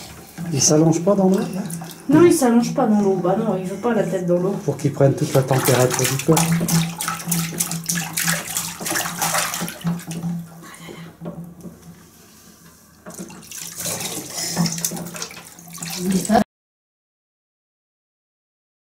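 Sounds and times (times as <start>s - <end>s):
bathwater splashing in a tub: 0.0s - 3.8s, 4.6s - 12.0s, 12.9s - 16.5s.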